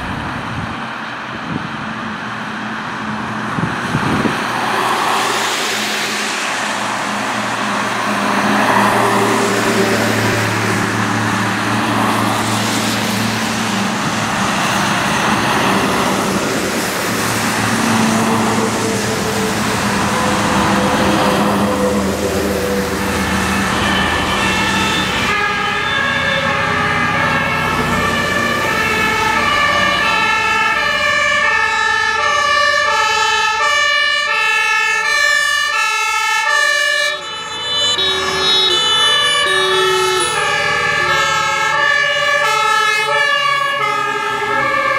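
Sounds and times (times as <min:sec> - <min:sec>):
vehicle engines running: 0:00.0 - 0:32.5, 0:38.0 - 0:44.9
two-tone sirens: 0:00.0 - 0:44.9
tyres hissing on wet road: 0:02.2 - 0:31.4.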